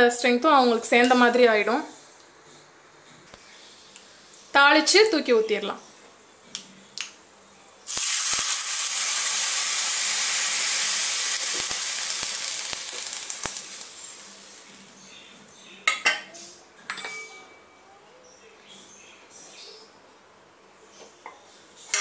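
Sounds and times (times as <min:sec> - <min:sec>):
liquid sizzling in hot oil: 0:07.8 - 0:15.1
utensils clinking: 0:16.9 - 0:17.6.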